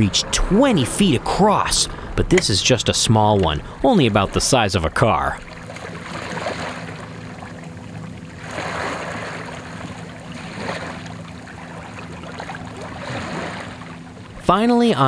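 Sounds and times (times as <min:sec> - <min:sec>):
boat engine humming: 0:00.0 - 0:15.0
water splashing and sloshing: 0:00.0 - 0:15.0.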